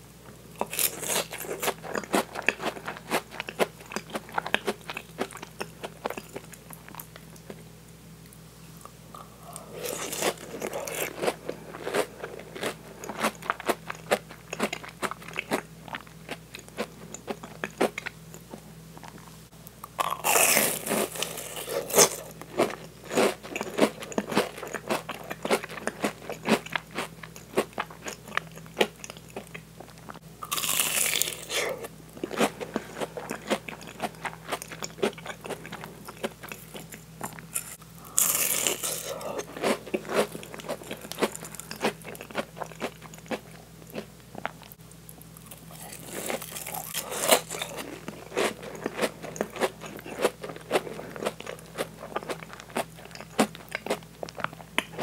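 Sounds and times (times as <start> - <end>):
crunchy bite: 9.2 - 15.7, 19.9 - 29.5, 30.4 - 44.5, 45.4 - 55.0.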